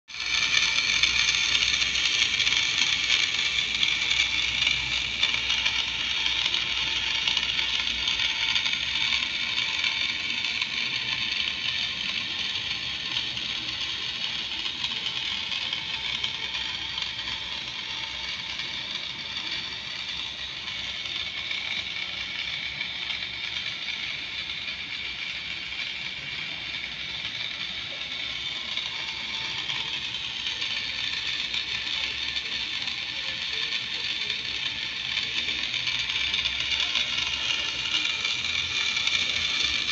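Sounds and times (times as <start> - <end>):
small electric motor whirring: 0.1 - 39.9
faint gear chatter: 0.2 - 39.9.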